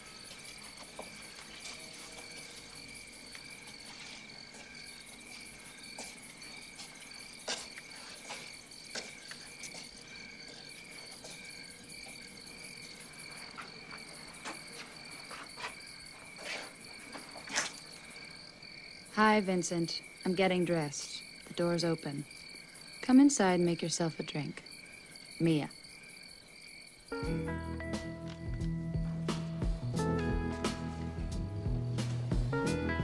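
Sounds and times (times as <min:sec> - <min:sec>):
footsteps on paved walkway: 0:00.0 - 0:18.0, 0:28.2 - 0:29.8
crickets chirping: 0:00.0 - 0:33.0.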